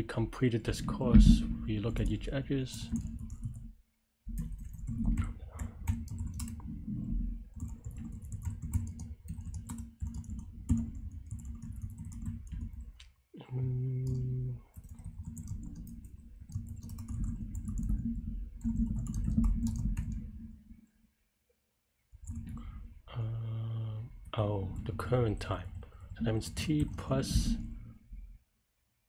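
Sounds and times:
typing on a keyboard: 2.8s - 3.6s, 4.3s - 6.7s, 7.5s - 13.0s, 14.0s - 20.3s.

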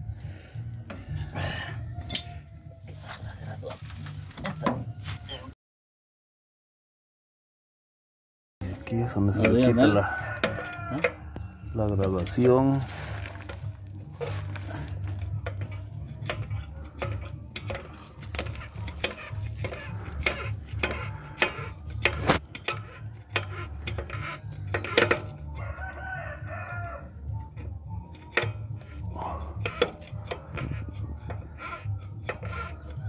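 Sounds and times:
rooster crowing: 9.4s - 12.0s, 25.4s - 27.3s
tool clicking and knocking on metal: 10.3s - 11.2s, 15.4s - 25.4s, 27.5s - 33.0s.

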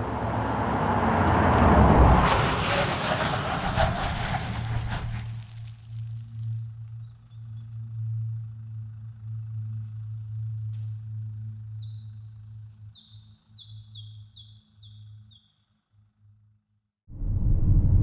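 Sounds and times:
steady low hum: 6.6s - 13.6s, 17.1s - 18.0s
bird chirping: 11.8s - 12.2s, 12.9s - 15.6s.

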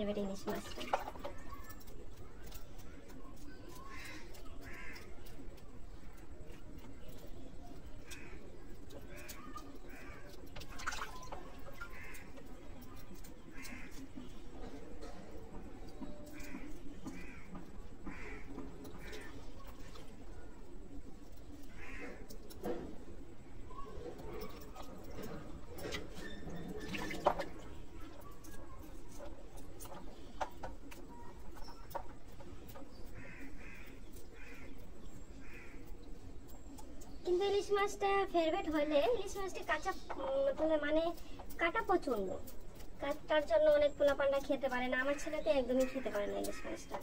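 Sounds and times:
water splashing and dripping: 0.0s - 14.3s, 24.1s - 37.2s
crows cawing: 2.5s - 6.1s, 8.0s - 14.8s, 16.0s - 20.0s, 21.6s - 22.6s, 32.7s - 36.3s, 45.0s - 47.0s.

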